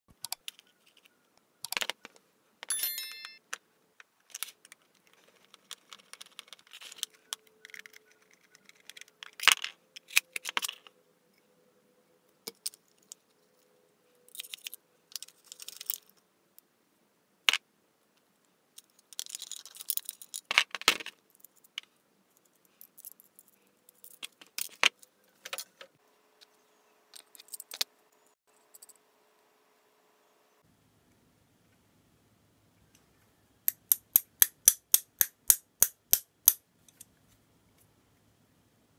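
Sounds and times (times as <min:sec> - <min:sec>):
metal parts clinking: 0:02.7 - 0:03.4.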